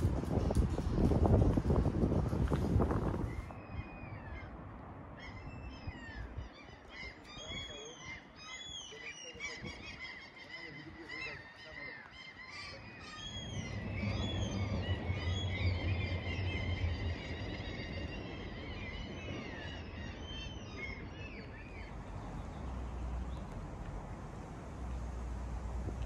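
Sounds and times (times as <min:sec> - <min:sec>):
small birds chirping: 0:05.2 - 0:25.3
low rumble: 0:12.8 - 0:26.0.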